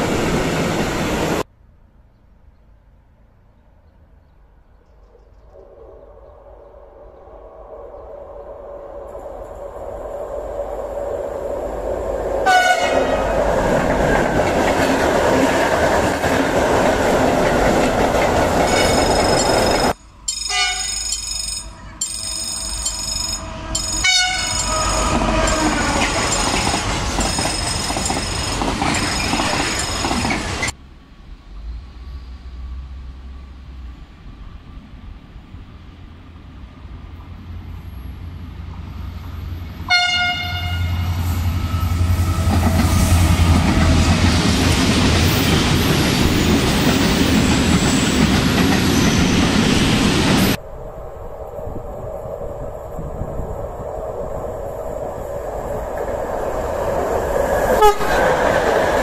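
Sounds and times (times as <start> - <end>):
freight wagons rumbling on rails: 9.2 - 31.8, 40.8 - 50.6
locomotive horn blasts: 12.4 - 13.3, 20.5 - 21.0, 21.6 - 26.1, 39.9 - 41.2, 57.8 - 58.2.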